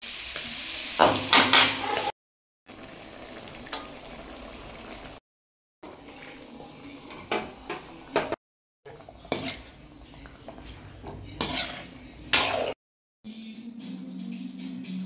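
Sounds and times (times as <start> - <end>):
metal spoon scraping a pot: 8.9 - 12.8.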